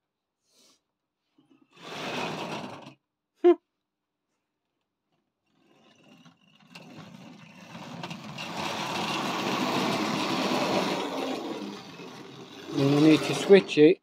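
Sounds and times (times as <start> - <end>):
wheels rattling on rail: 5.6 - 13.8
small electric motor whirring: 6.0 - 13.8.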